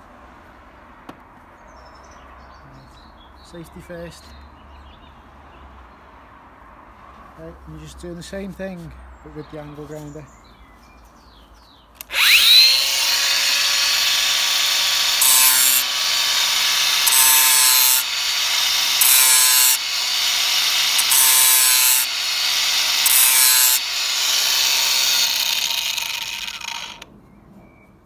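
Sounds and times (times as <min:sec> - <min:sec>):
angle grinder grinding steel: 0:12.0 - 0:27.1
grinder disc biting edge: 0:12.0 - 0:27.1.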